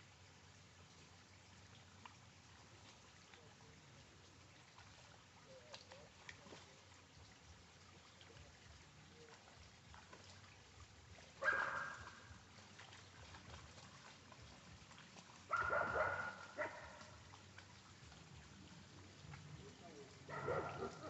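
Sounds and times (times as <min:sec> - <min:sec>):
stream trickling: 0:00.0 - 0:21.0
dog barking: 0:11.4 - 0:12.2, 0:15.5 - 0:17.1, 0:20.3 - 0:21.0.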